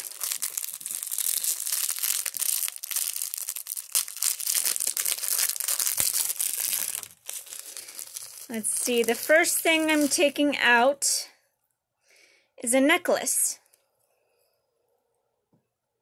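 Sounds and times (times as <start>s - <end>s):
wrapping crinkling and rustling: 0.0s - 10.5s.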